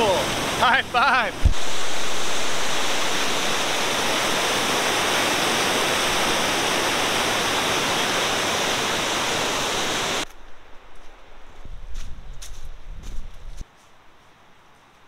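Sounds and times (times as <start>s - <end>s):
rapids rushing over rocks: 0.0s - 10.3s.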